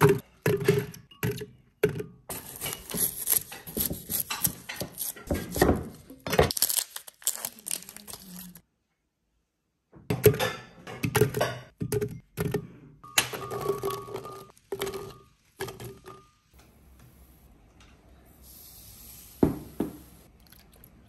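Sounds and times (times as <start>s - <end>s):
sugar pouring hiss: 18.4s - 20.2s.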